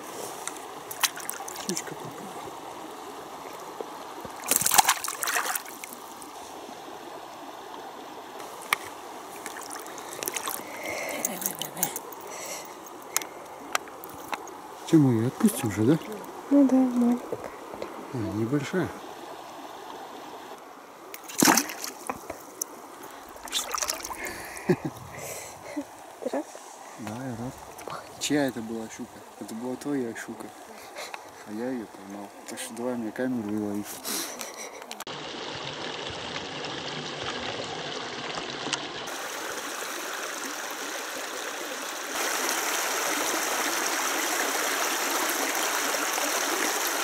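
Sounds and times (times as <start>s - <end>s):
splashing in shallow water: 0.0s - 6.9s, 8.4s - 14.6s, 21.1s - 26.2s
water trickling: 0.0s - 47.0s.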